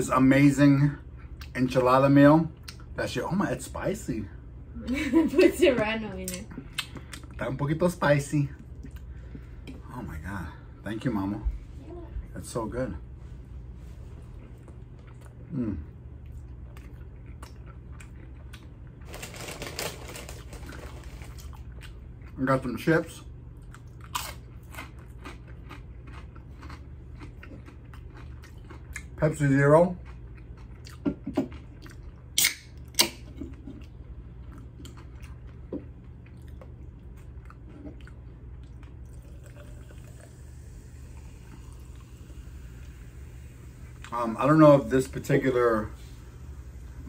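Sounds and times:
chewing and crunching chips: 14.3 - 43.0
wet chewing: 14.4 - 19.1, 23.6 - 29.2
person humming mmm: 15.5 - 15.9.

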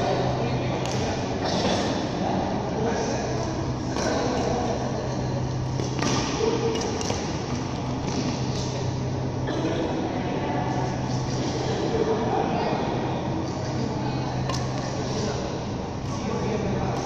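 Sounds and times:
steady low hum: 0.0 - 17.0
rackets striking shuttlecock: 5.7 - 8.7.

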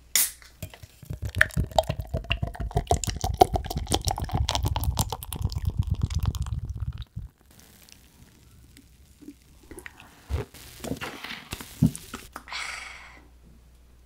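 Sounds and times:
person swallowing gulps: 0.8 - 7.4
soft hiss: 4.8 - 14.0.

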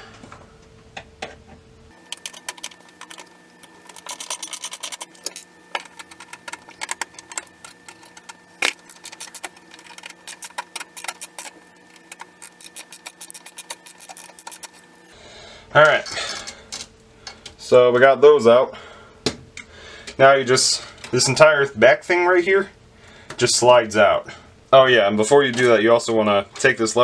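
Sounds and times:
screwdriver clicking on metal screws: 2.1 - 14.9.

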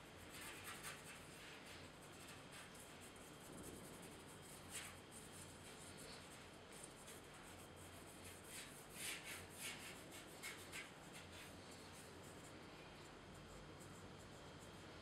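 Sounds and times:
dry brush swishing on paper: 0.2 - 13.6.

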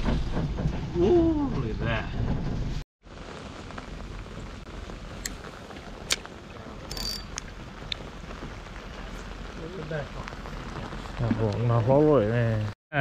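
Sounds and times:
rain hissing: 3.0 - 12.8
fishing reel clicks: 6.9 - 7.4.

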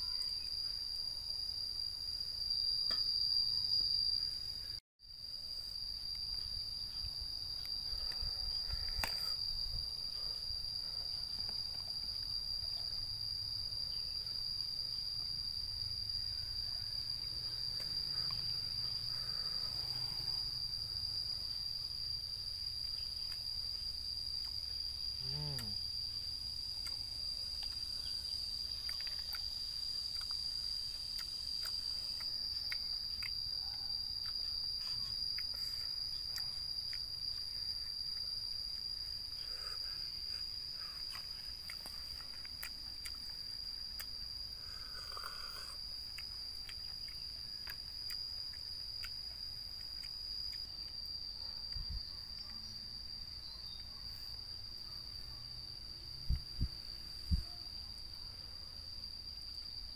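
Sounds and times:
high-pitched insect chirring: 0.0 - 59.9.

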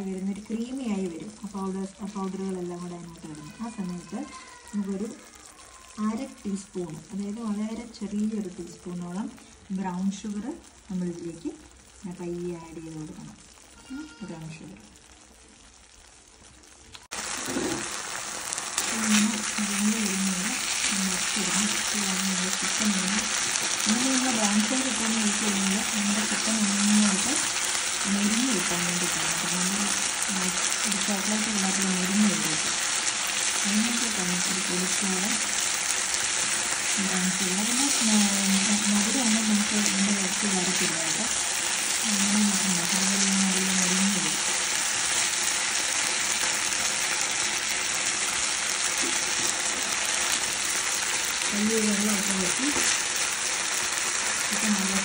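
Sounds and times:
chicken sizzling in a pan: 0.0 - 55.0
spatula stirring in pan: 17.2 - 19.8.

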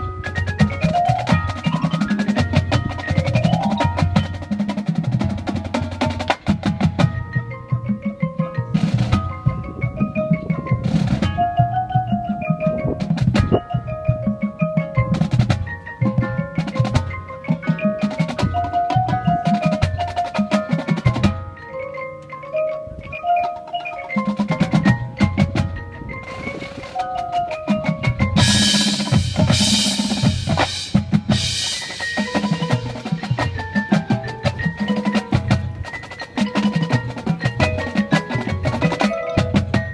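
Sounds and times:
snare tenor and bass drums: 0.0 - 21.6, 23.5 - 39.9
mallet instruments melody: 0.0 - 39.9
metal percussion crash: 24.8 - 35.7.

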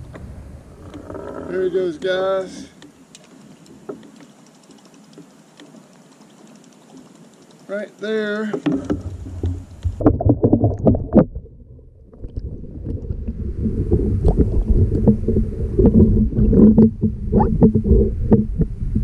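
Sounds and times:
wind rumble: 0.0 - 1.9, 9.0 - 19.0
knocks and bumps in a canoe: 0.0 - 19.0
microphone handling noise: 8.7 - 19.0.

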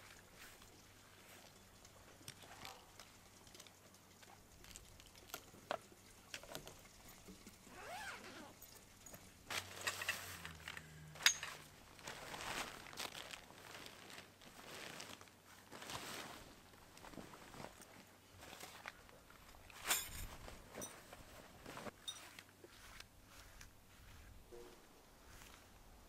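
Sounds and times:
fabric bag rustling: 11.4 - 18.9, 19.8 - 23.4.

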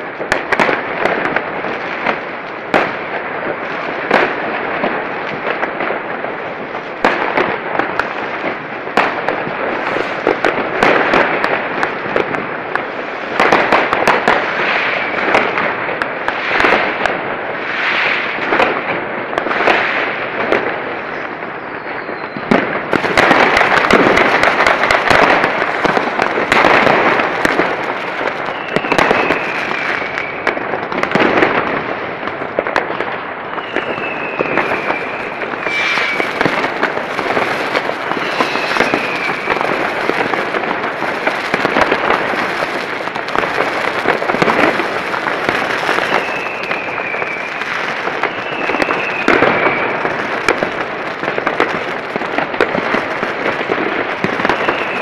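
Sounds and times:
fireworks crackling bangs: 0.0 - 55.0
falling whistles: 21.6 - 22.5, 28.5 - 30.4, 33.5 - 36.4, 38.1 - 39.6, 45.9 - 50.0, 54.5 - 55.0.

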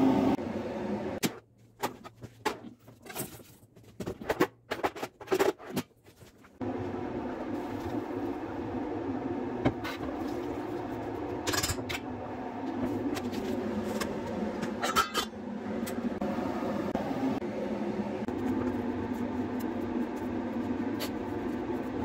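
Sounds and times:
steady background hum: 0.0 - 22.0
metal pot clattering: 14.7 - 15.4.

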